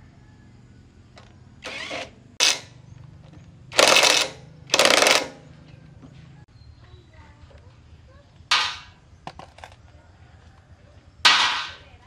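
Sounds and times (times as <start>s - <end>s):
impact wrench hammering bolt: 1.7s - 2.7s, 3.8s - 5.4s.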